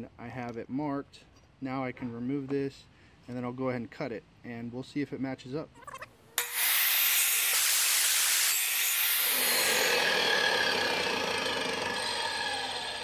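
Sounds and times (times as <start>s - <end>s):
tile saw cutting tile: 6.4s - 13.0s.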